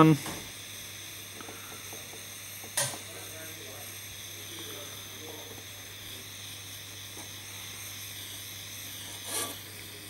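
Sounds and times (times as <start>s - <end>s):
soldering torch flame hissing: 0.0s - 10.0s.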